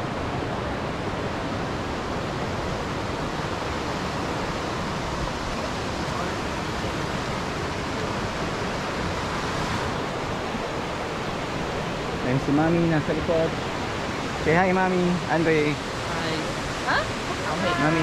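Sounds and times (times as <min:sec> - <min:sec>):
falling water rushing: 0:00.0 - 0:18.0.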